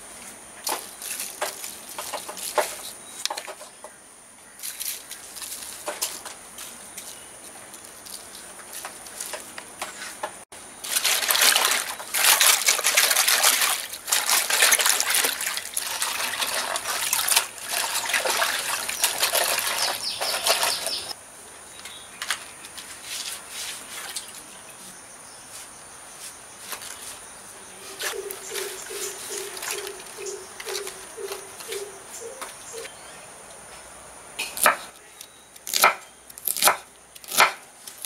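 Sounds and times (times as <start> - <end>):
water splashing in a metal bowl: 10.9 - 21.1.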